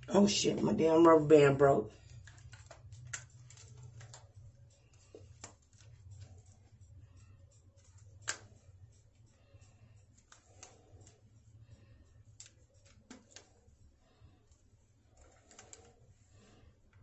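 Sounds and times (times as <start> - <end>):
hair rustling and clicks: 1.9 - 17.0.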